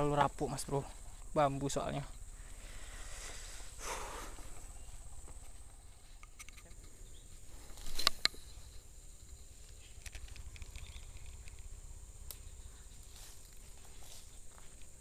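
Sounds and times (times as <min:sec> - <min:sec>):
high insect drone: 0:00.0 - 0:15.0
faint clicks: 0:07.8 - 0:13.6.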